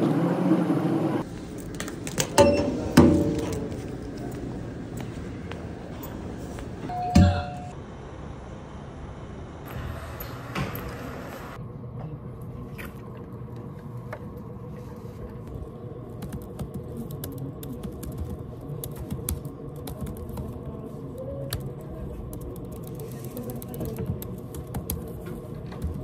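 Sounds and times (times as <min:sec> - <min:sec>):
low room hum: 0:00.0 - 0:26.0
laptop keyboard typing: 0:16.1 - 0:26.0.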